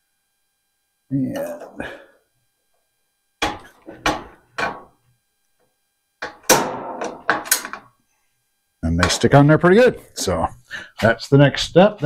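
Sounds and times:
control knobs knocking and clicking: 3.4s - 4.9s, 6.2s - 7.9s.

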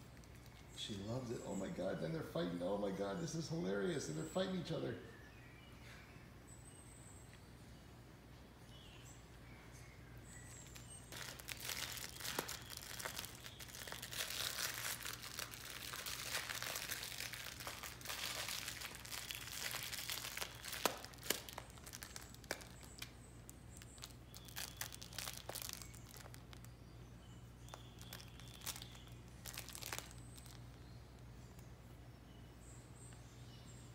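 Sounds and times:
plush toys crinkling and rustling: 0.0s - 0.8s, 10.2s - 31.6s
sharp crackles and clicks: 0.0s - 0.8s, 10.5s - 26.7s, 27.6s - 31.7s.

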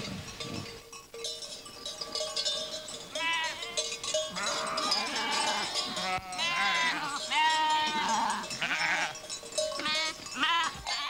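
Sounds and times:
sheep bells clanking: 0.0s - 11.0s
sheep bleating: 3.1s - 9.2s, 9.8s - 11.0s.

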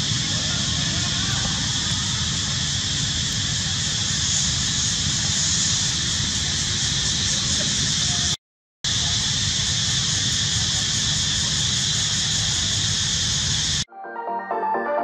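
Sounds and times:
loud outdoor hiss: 0.0s - 13.9s
electronic music: 13.9s - 15.0s.

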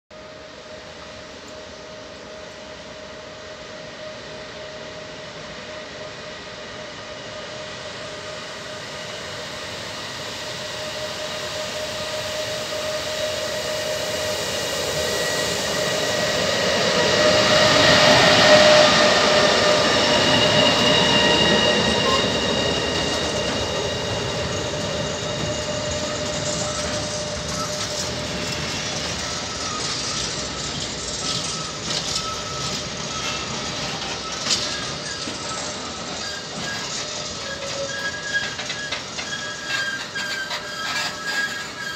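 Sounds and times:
electric locomotive whine: 0.1s - 41.9s
wheels clicking over rails: 20.7s - 41.9s.

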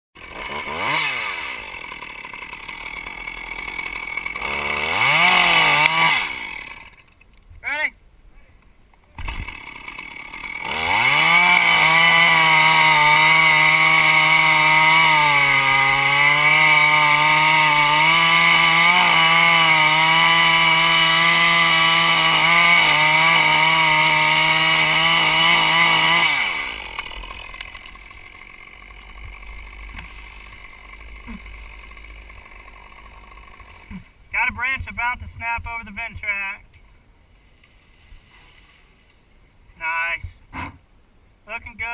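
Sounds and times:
chainsaw cutting wood: 0.2s - 7.2s, 9.2s - 34.2s.

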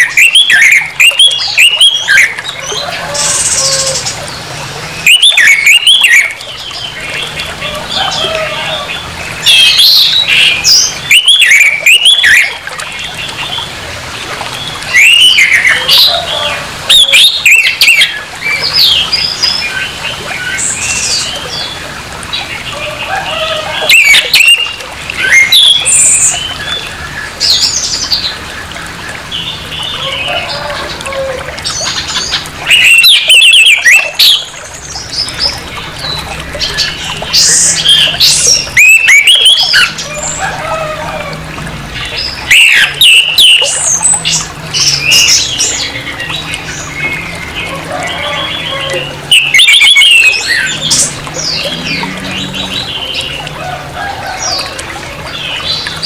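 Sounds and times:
bird chirps: 0.0s - 4.2s, 5.0s - 7.4s, 8.0s - 12.6s, 14.8s - 19.8s, 23.3s - 26.8s, 29.4s - 40.5s, 42.2s - 53.4s
thrush warbling song: 0.0s - 56.0s.

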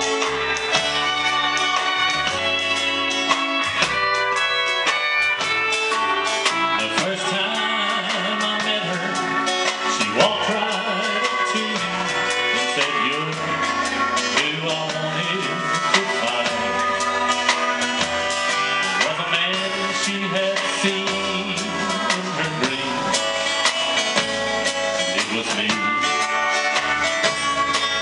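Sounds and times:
country band playing: 0.0s - 28.0s
man singing: 6.3s - 17.1s, 18.5s - 23.6s, 25.0s - 26.6s.

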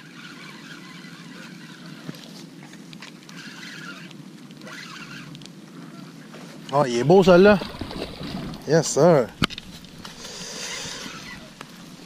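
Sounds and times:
fishing reel whirring: 0.0s - 6.2s, 9.5s - 12.0s.

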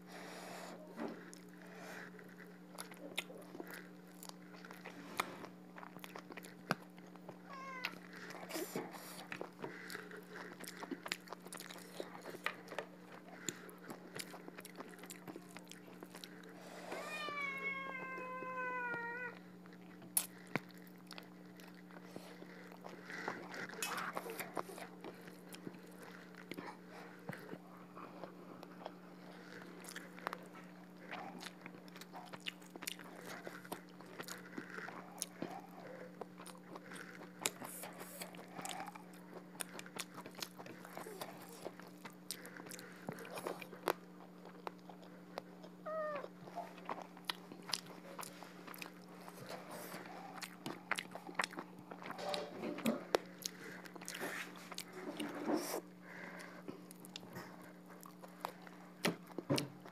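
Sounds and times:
steady low hum: 0.0s - 59.9s
wet chewing and lip smacks: 28.2s - 52.2s, 52.8s - 59.9s.

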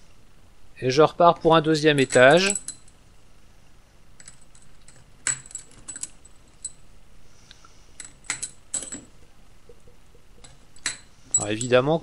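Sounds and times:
steel nails clinking: 1.4s - 3.0s, 4.1s - 6.9s, 8.0s - 9.2s, 10.4s - 11.8s.

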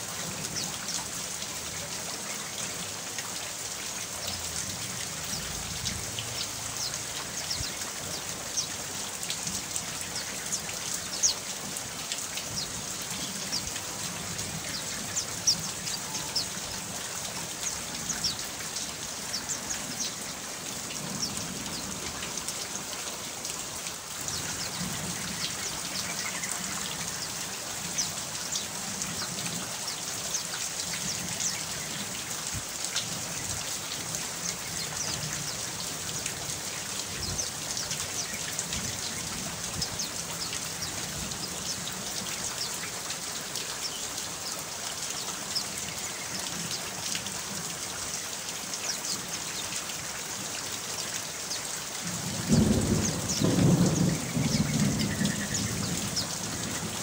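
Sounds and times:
rain falling: 0.0s - 57.0s
loud single raindrops: 52.0s - 57.0s.

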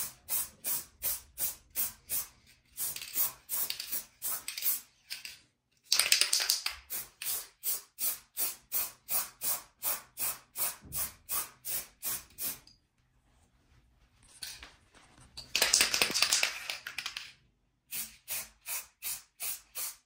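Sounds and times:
spray-paint can hissing: 0.0s - 4.9s, 6.9s - 12.6s, 17.9s - 20.0s.

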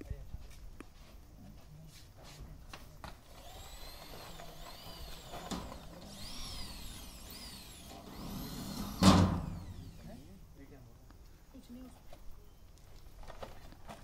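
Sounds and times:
electric drill driving screws: 3.2s - 10.3s.

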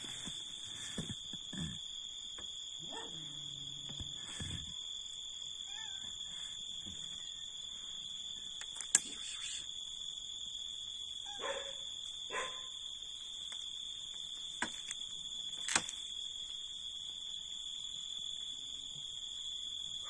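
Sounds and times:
cats meowing: 5.6s - 6.2s
sharp clicks: 8.6s - 9.3s.

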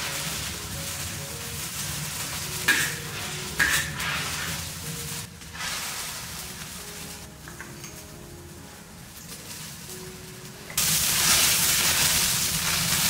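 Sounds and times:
liquid boiling in a wok: 0.0s - 7.3s, 10.8s - 13.0s.

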